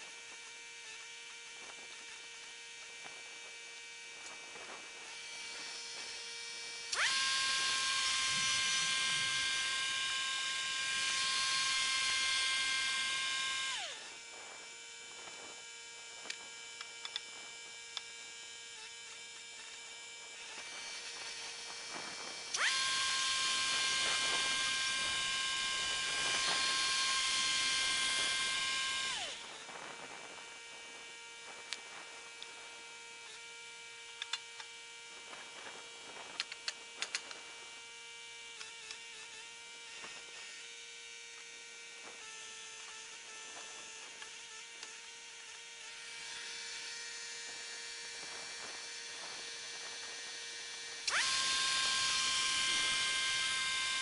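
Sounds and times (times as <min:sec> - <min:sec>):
sawmill engine idling and revving: 0:04.3 - 0:14.3, 0:20.5 - 0:31.3.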